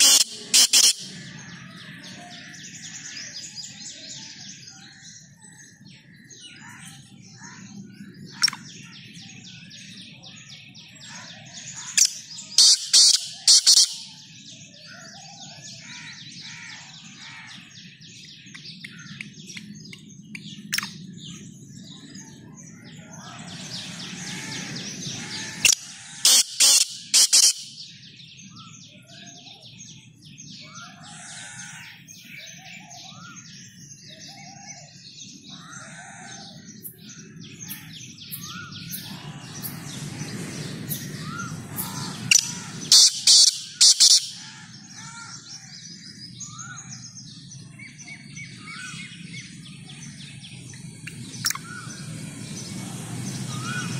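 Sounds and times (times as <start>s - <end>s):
bird calling harsh notes: 0.0s - 1.4s, 11.8s - 14.2s, 24.3s - 27.9s, 40.9s - 45.3s.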